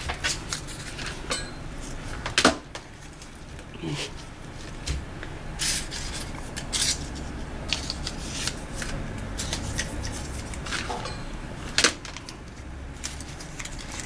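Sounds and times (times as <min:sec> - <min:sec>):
paper leaves and twigs crinkling: 0:05.6 - 0:11.0, 0:11.6 - 0:14.0.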